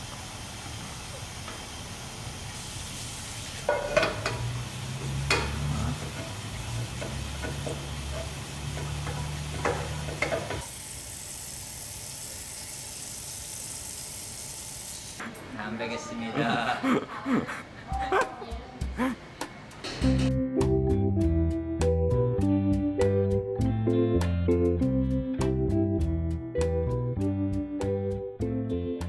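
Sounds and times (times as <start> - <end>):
food sizzling in a frying pan: 0.0 - 15.2.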